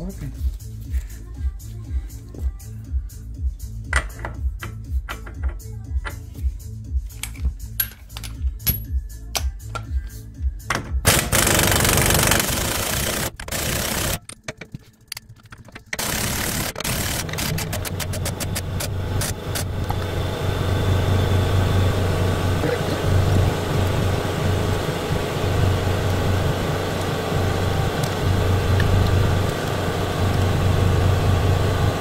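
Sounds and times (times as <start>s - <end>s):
background music with steady beat: 0.0s - 16.8s
rapid clicking: 11.1s - 19.7s
low hum: 15.9s - 32.0s.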